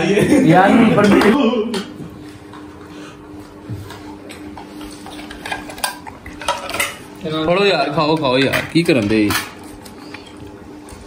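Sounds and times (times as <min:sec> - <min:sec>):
spoons clinking on plates: 0:05.1 - 0:07.0.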